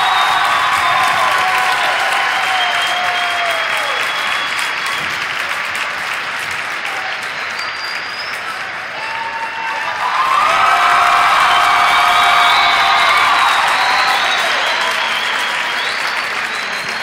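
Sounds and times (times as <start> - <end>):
crowd applauding and cheering: 0.0 - 17.0.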